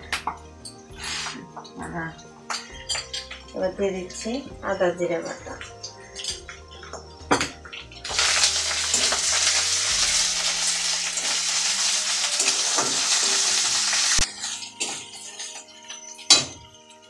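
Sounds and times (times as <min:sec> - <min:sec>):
paste sizzling in hot oil: 0:07.7 - 0:16.4.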